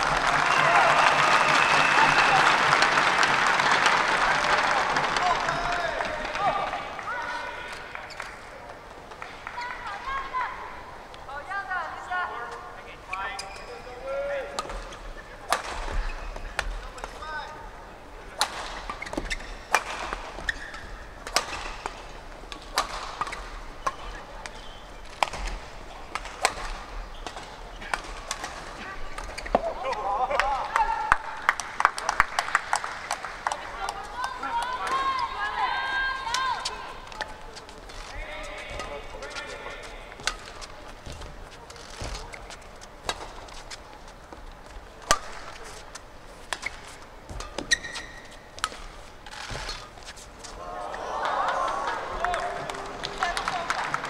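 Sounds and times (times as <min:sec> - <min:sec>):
murmur of spectators: 0:00.0 - 0:54.0
shoe squeaking on court floor: 0:12.5 - 0:14.0, 0:14.7 - 0:17.5, 0:18.6 - 0:29.8, 0:36.5 - 0:44.4, 0:45.2 - 0:50.6
rackets striking shuttlecock: 0:18.4 - 0:29.7, 0:38.7 - 0:43.8, 0:45.0 - 0:50.0.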